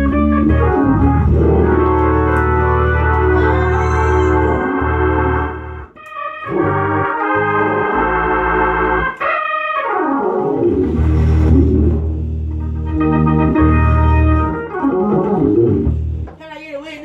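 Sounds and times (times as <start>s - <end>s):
fast organ run: 0.0s - 16.3s
organ playing full chords: 0.0s - 16.3s.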